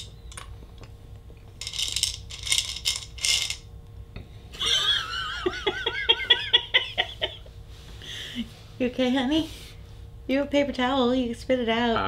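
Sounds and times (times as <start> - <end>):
person laughing: 4.6 - 8.5.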